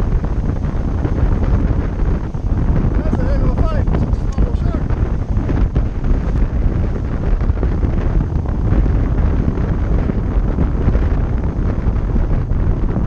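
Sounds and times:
wind buffeting microphone: 0.0s - 13.0s
faint surf: 3.0s - 7.4s.

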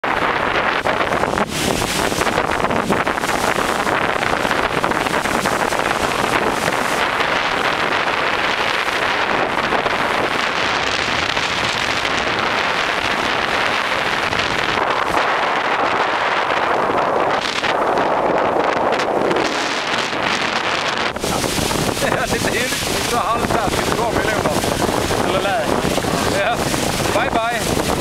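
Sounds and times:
water rushing past hulls: 0.0s - 28.0s
wind buffeting the microphone: 0.0s - 28.0s.

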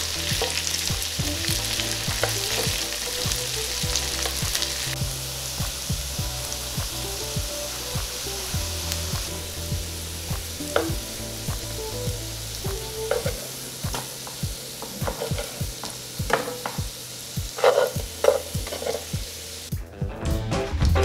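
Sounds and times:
potatoes sizzling in a pan: 0.0s - 19.7s
spatula scraping and knocking pan: 13.1s - 16.8s, 17.6s - 19.2s.

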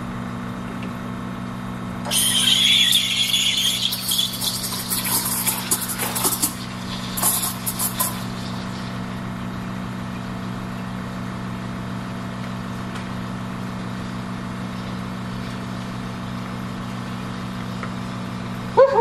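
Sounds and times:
steady hiss: 2.1s - 9.1s
espresso machine pump humming: 2.1s - 10.9s.

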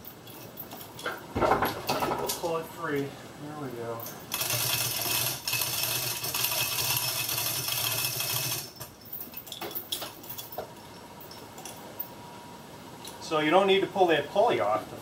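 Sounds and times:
electric chain hoist motor: 4.0s - 11.8s
light metallic clinks: 8.6s - 12.2s.

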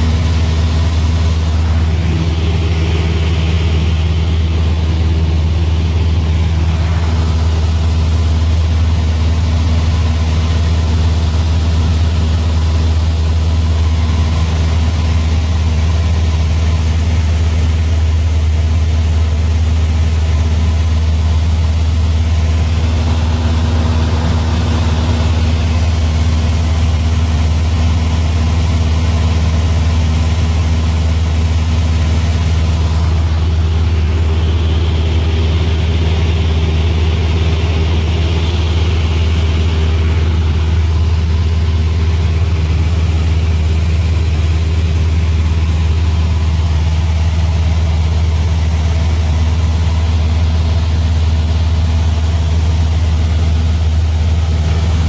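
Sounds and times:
airplane engine drone: 0.0s - 55.0s.

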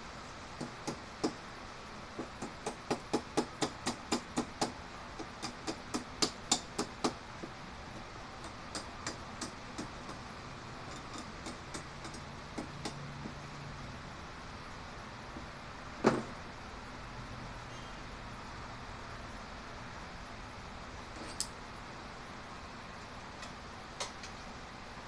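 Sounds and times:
chipping hammer tapping on steel: 2.2s - 7.6s.

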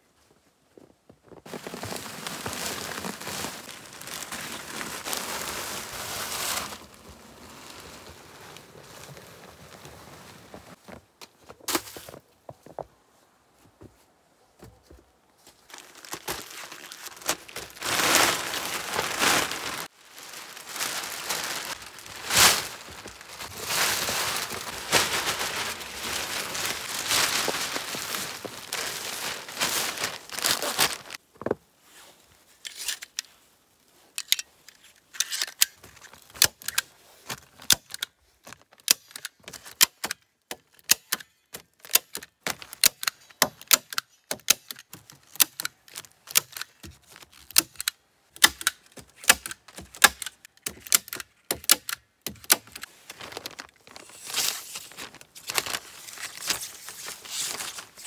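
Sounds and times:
plastic sheeting crinkling: 1.2s - 11.0s, 15.5s - 31.2s, 52.5s - 58.0s.

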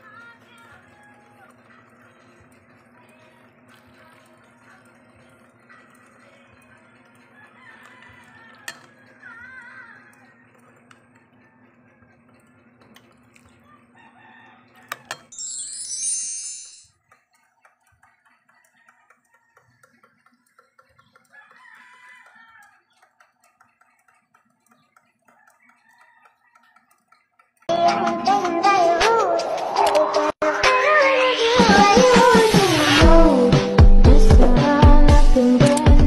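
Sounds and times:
faint music: 0.0s - 25.3s.

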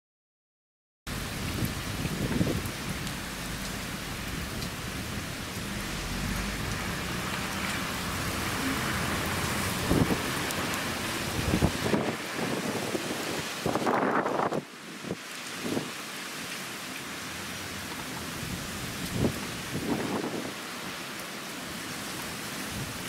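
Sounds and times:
heavy rain pouring on road: 1.1s - 23.0s
wind buffeting microphone: 1.3s - 15.9s, 18.4s - 20.6s.

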